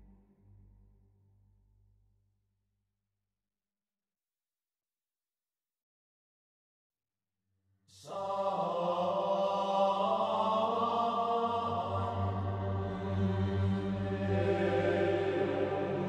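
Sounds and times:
chant-like voices over drone: 7.9 - 16.0.

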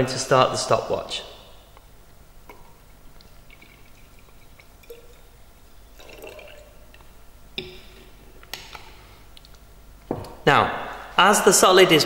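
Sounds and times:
liquid trickling and dripping: 2.5 - 7.8.

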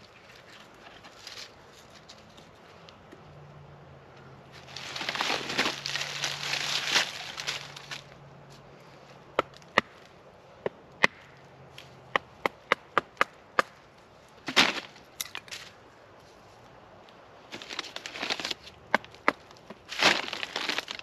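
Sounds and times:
scraping: 4.6 - 8.1
sharp wooden knocks: 10.6 - 11.3, 12.1 - 13.8
wood splintering crack: 20.0 - 21.0.

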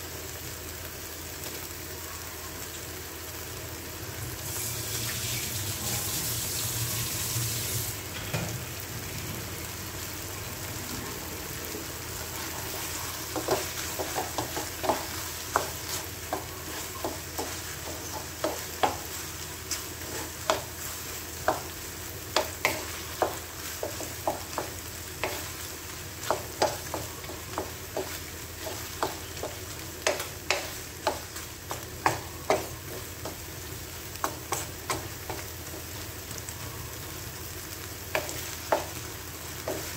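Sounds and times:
food sizzling in a wok: 0.0 - 39.9
wooden spatula knocking pan: 13.2 - 20.8, 21.4 - 25.6, 26.2 - 33.5, 38.1 - 39.0.

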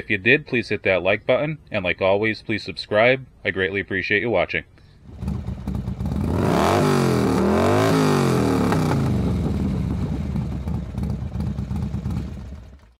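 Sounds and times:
motorcycle engine revving and idling: 5.0 - 13.0.

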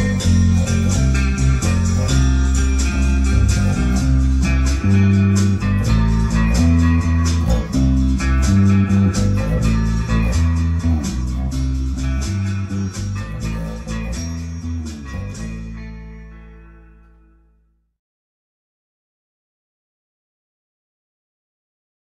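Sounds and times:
steady drum beat: 0.0 - 15.7
electric guitar: 0.0 - 17.5
electric bass guitar: 0.0 - 17.7.

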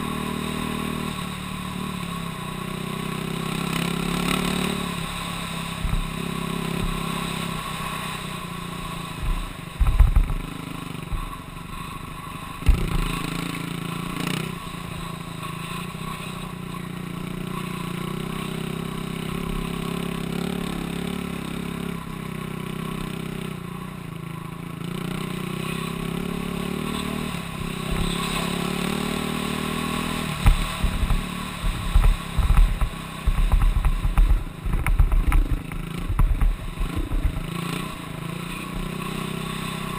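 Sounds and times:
dirt bike engine revving: 0.0 - 39.9
low rumble hitting microphone: 30.4 - 37.5.

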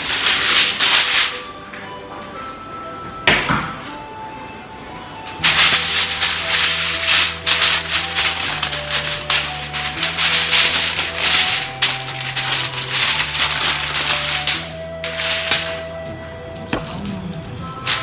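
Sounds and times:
aluminium foil crinkling: 0.0 - 1.4, 5.4 - 15.9
soft background music: 0.0 - 18.0.

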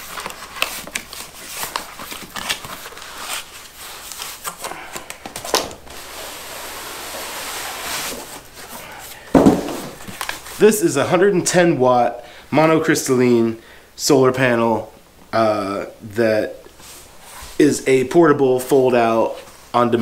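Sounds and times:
cardboard sliding on cardboard: 5.9 - 8.9
cardboard flaps crackling: 9.3 - 10.6.

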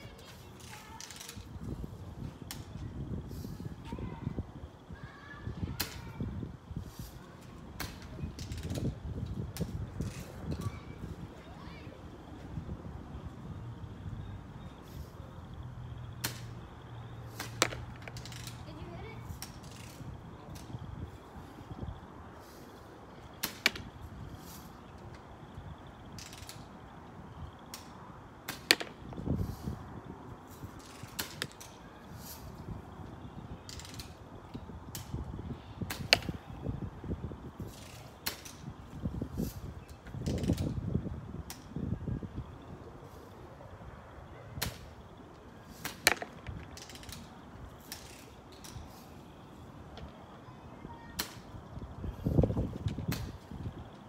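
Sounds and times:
bb gun firing snap: 27.7 - 29.0, 35.8 - 36.4, 45.8 - 47.2.

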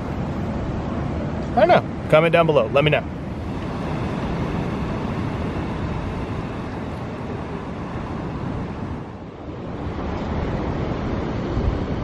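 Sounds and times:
ocean surf breaking: 1.5 - 12.0
wind on microphone: 3.2 - 12.0.

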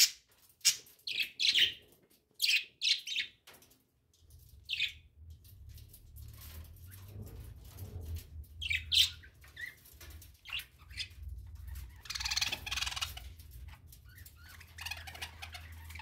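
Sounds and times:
budgerigars chirping: 12.0 - 13.2.

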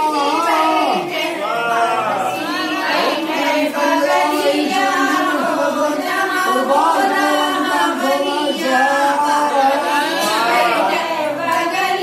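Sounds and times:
group chanting unaccompanied: 0.0 - 12.0.

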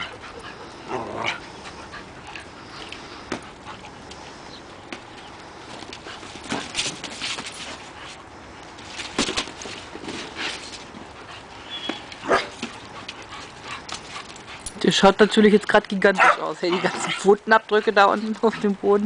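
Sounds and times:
dogs barking while playing: 11.8 - 12.8, 16.2 - 17.1.

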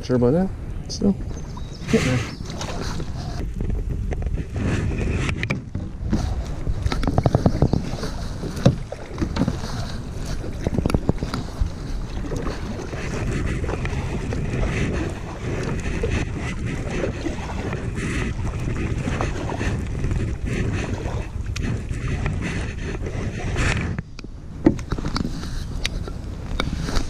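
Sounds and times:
water splashing along kayak: 0.0 - 27.0
wind buffeting microphone: 0.0 - 27.0
fishing gear knocking on kayak hull: 6.8 - 14.7.

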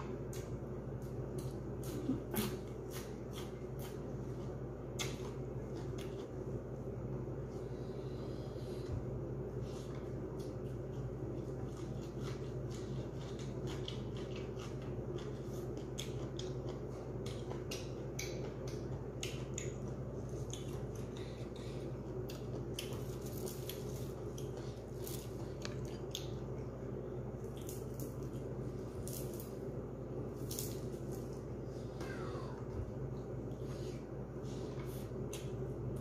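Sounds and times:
steady low hum: 0.0 - 36.0
wet chewing and mouth smacks: 10.3 - 26.6.

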